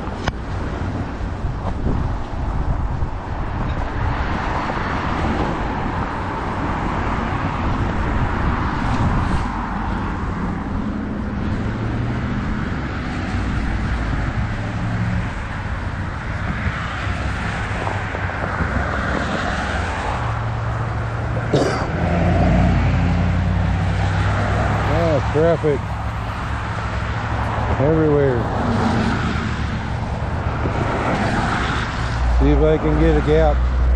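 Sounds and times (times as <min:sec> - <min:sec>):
cars driving on slushy road: 0:00.0 - 0:33.9
engine hum: 0:00.0 - 0:33.9
wind buffeting microphone: 0:00.0 - 0:33.9.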